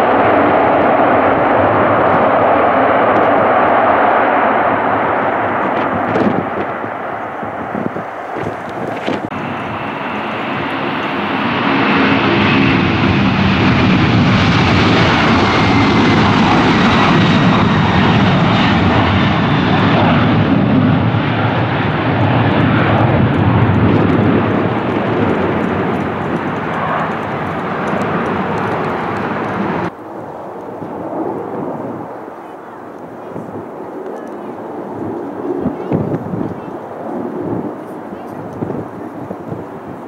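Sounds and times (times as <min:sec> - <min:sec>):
high jet whine falling in pitch: 0:00.0 - 0:36.5
jet engines roaring: 0:00.0 - 0:40.0.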